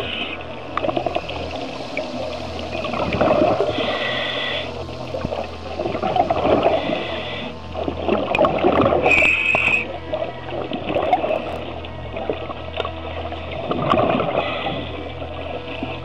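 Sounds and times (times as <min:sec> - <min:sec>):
regulator inhalation hiss: 0:00.0 - 0:08.0, 0:09.0 - 0:10.0
steady low hum: 0:00.0 - 0:16.0.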